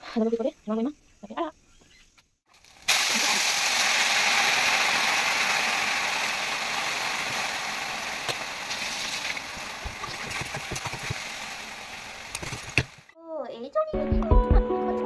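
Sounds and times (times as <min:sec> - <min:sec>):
food sizzling in hot oil: 0:02.6 - 0:13.1.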